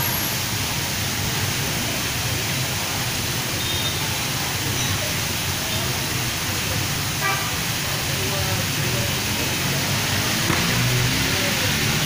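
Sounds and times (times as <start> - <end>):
waterfall splashing into pond: 0.0 - 12.0.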